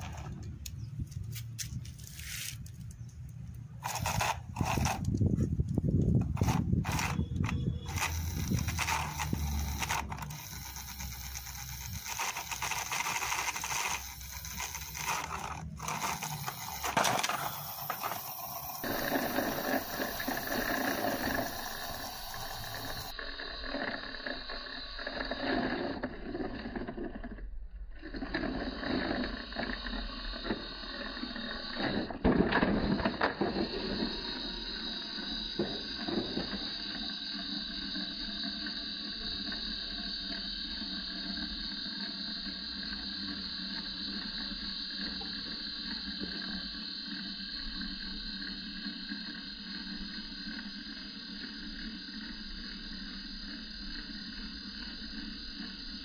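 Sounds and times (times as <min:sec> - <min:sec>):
plastic toys scraping and knocking: 0:00.0 - 0:03.0, 0:03.8 - 0:23.1, 0:25.1 - 0:30.6, 0:31.4 - 0:34.3.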